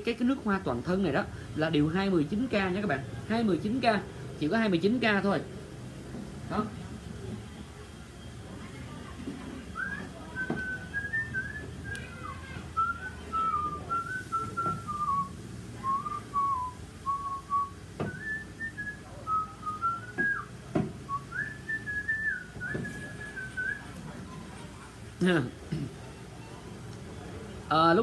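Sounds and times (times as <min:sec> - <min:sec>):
man whistling a tune: 0:09.8 - 0:23.9.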